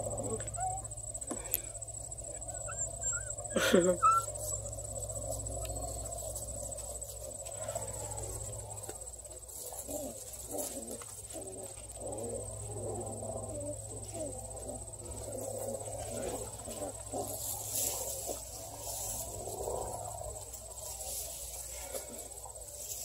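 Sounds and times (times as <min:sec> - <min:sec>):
crickets trilling: 0:00.0 - 0:23.0
puppies growling and scuffling: 0:00.0 - 0:23.0.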